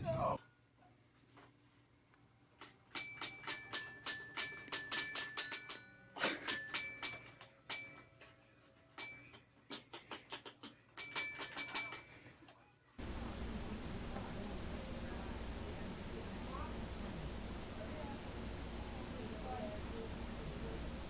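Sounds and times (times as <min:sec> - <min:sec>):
bell-like notes from musical toy: 0:02.9 - 0:08.3, 0:08.9 - 0:09.4, 0:11.0 - 0:12.4.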